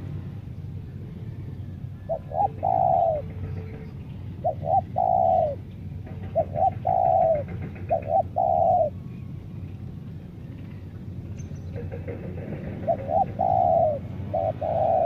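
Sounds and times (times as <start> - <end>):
dove cooing: 1.8 - 9.2, 11.7 - 15.0.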